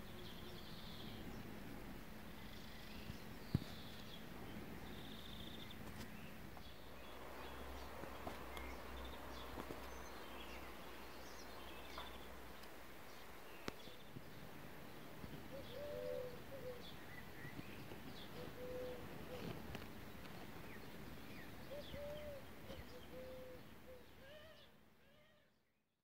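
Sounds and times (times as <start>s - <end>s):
small birds chirping: 0.0s - 25.9s
dove cooing: 15.5s - 17.5s, 18.2s - 19.9s, 21.6s - 25.4s.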